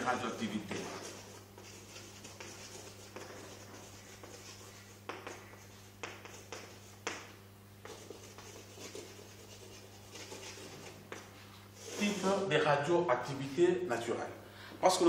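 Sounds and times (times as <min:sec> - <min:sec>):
steady low hum: 0:00.0 - 0:15.0
chalk scratching on chalkboard: 0:00.3 - 0:12.5
chalk tapping: 0:00.4 - 0:12.3.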